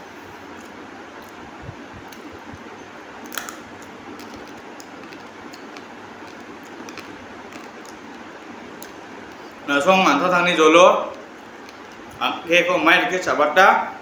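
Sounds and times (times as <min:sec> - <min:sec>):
man chewing: 0:03.3 - 0:09.7.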